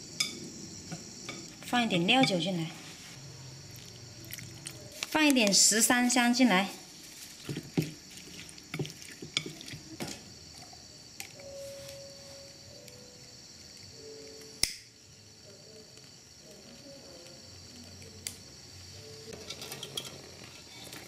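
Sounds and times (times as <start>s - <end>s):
crickets chirping: 0.0s - 21.0s
lighter being struck: 14.4s - 15.0s.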